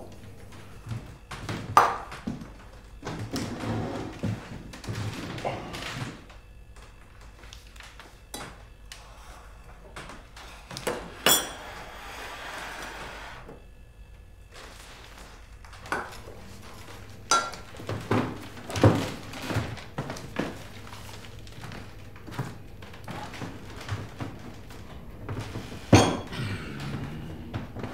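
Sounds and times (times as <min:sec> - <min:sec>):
tableware clinking: 0:11.2 - 0:11.6, 0:17.3 - 0:17.6, 0:25.9 - 0:26.3.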